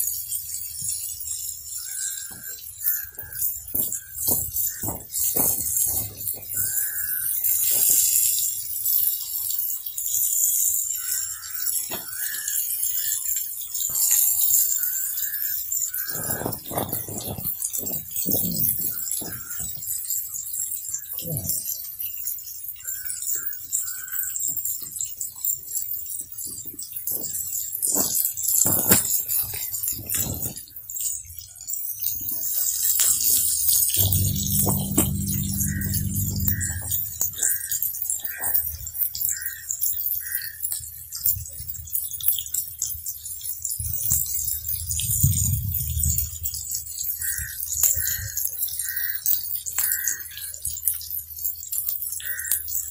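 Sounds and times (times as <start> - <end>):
sauce bubbling and sizzling in a pan: 0.0 - 52.9
short high tone: 34.0 - 37.6.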